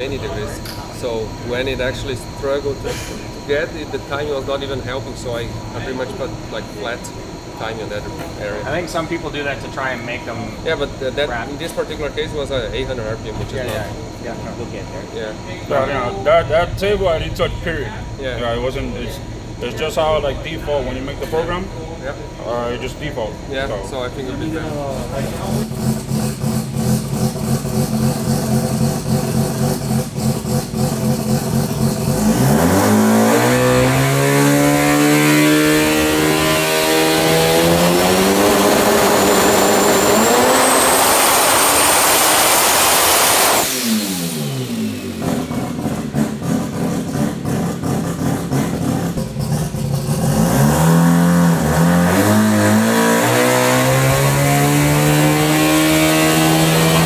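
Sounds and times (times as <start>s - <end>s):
rotary engine revving: 22.6s - 57.0s.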